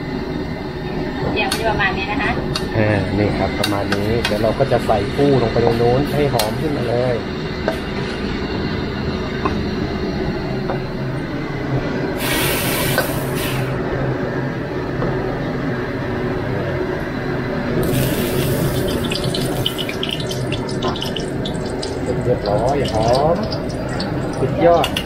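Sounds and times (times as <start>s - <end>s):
steady low noise: 0.0s - 25.0s
hot oil hissing into soup: 12.2s - 13.7s, 17.8s - 24.5s.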